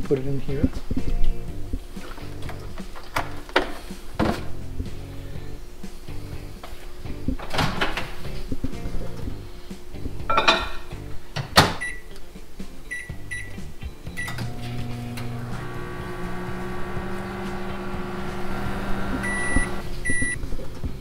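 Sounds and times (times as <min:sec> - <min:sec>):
microwave humming: 0:14.1 - 0:20.4
microwave door shutting: 0:14.2 - 0:20.3
keypad beeps: 0:19.2 - 0:20.4
long microwave beep: 0:19.2 - 0:20.4.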